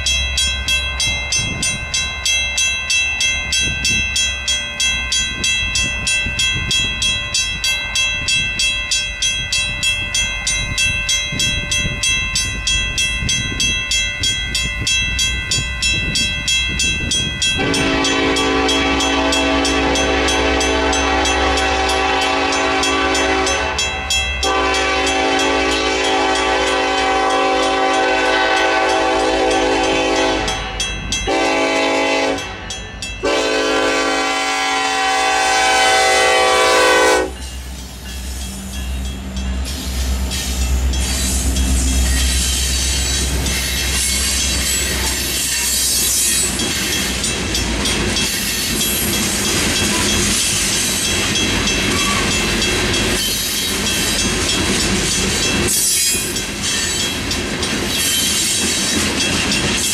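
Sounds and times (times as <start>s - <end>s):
railroad crossing bells ringing: 0.0s - 59.9s
locomotive air horn blasts: 17.6s - 32.6s, 33.2s - 37.4s.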